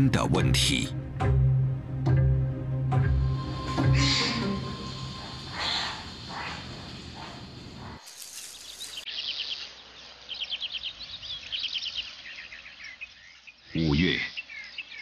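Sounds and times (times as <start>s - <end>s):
soft background music drone: 0.0s - 7.3s
birds singing trilled phrases: 8.5s - 15.0s.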